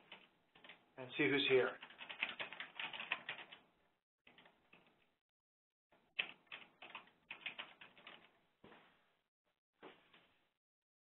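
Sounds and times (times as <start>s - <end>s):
keyboard typing: 1.8s - 3.6s, 6.0s - 8.4s.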